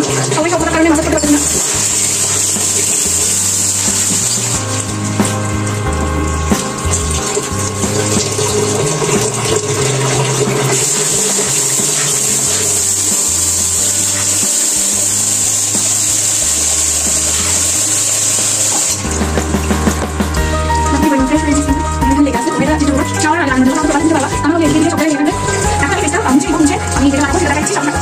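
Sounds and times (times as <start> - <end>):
background music: 0.0 - 28.0
running water hiss: 0.0 - 28.0
water splashing face rinsing: 0.0 - 28.0.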